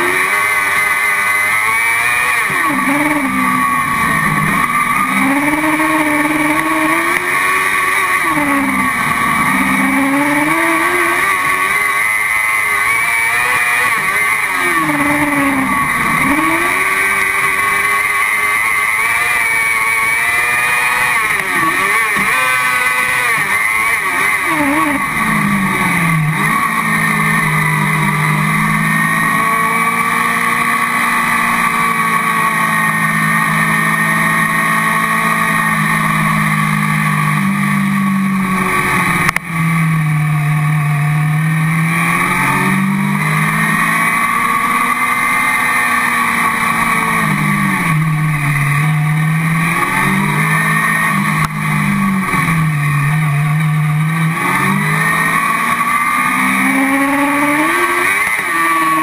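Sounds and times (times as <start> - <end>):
buggy engine at racing revs: 0.0 - 59.0.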